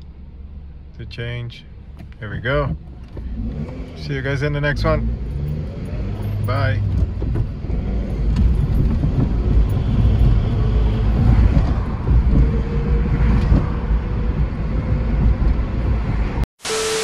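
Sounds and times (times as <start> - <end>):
car engine rumble: 0.0 - 16.5
road noise: 0.0 - 17.0.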